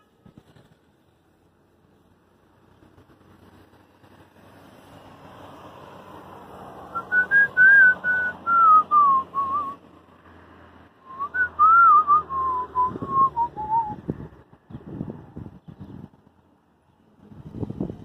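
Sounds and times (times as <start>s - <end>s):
person whistling a tune: 6.9s - 9.8s, 11.0s - 14.0s.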